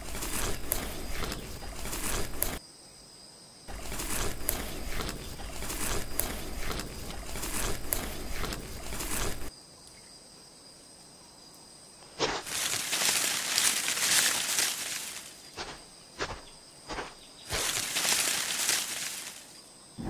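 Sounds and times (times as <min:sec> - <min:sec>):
noisy rustling: 0:00.0 - 0:02.6, 0:03.7 - 0:09.5, 0:12.1 - 0:19.6
scattered ticks and clicks: 0:00.0 - 0:02.6, 0:03.7 - 0:09.5.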